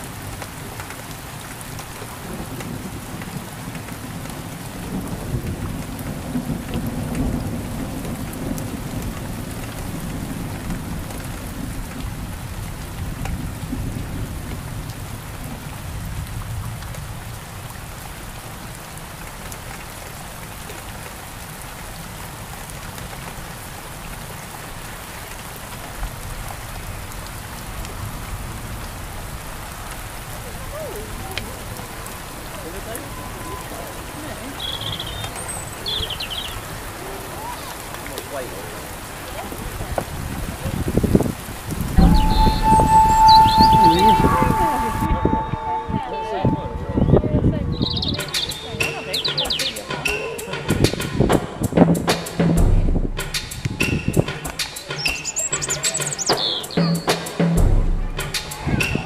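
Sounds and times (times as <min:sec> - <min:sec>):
steady rain falling: 0:00.0 - 0:59.0
low rumbling thunder: 0:02.1 - 0:17.7, 0:39.5 - 0:45.6, 0:52.6 - 0:53.3.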